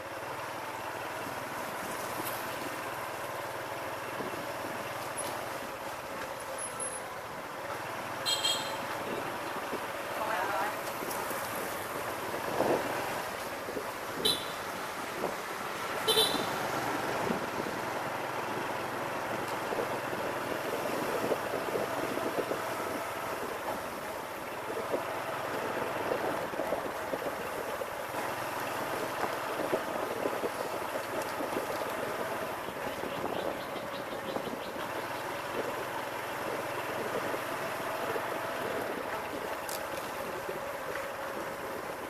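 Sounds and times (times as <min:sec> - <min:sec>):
road noise: 0:00.0 - 0:42.0
wind noise: 0:08.6 - 0:42.0.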